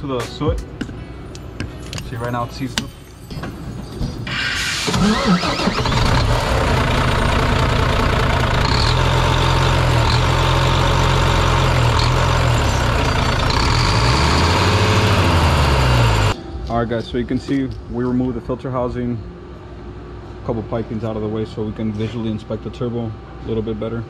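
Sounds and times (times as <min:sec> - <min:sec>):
diesel engine starting and idling: 0:04.3 - 0:16.4.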